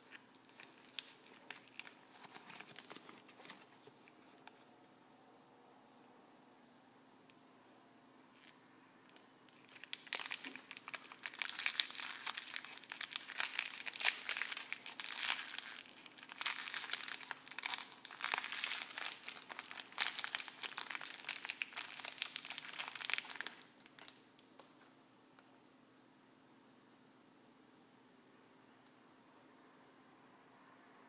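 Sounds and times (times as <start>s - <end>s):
plastic wrapper crinkling: 0.0s - 4.5s, 8.3s - 24.8s.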